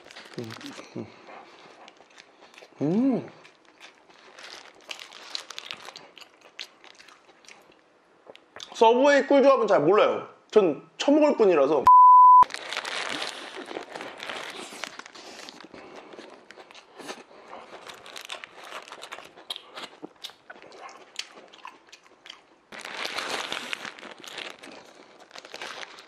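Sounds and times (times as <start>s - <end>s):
paper wrapper crinkling: 0.0s - 2.4s, 3.6s - 6.2s, 12.4s - 19.5s, 22.7s - 26.0s
chewing and crunching: 0.0s - 8.8s, 12.5s - 26.0s
steady beep tone: 11.9s - 12.4s.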